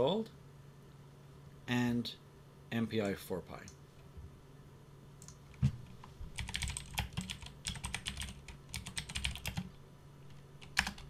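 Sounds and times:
typing on computer keyboard: 6.4 - 9.7, 10.6 - 11.0.

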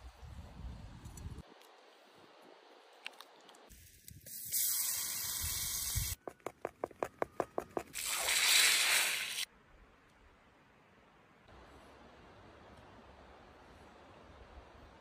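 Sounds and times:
loud hiss of poured butter: 4.3 - 6.2, 8.0 - 9.5.

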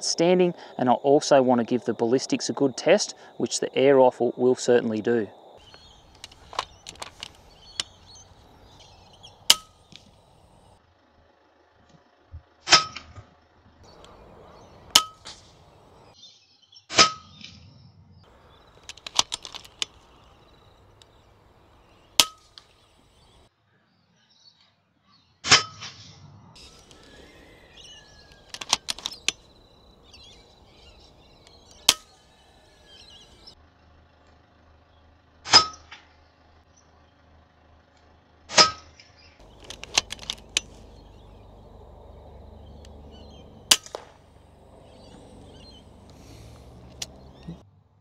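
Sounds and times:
air rifle shots: 5.6 - 10.2, 13.9 - 16.0, 18.4 - 21.2, 22.1 - 23.3, 26.6 - 33.5, 39.4 - 47.5
quiet clicks and knocks: 39.4 - 47.6.

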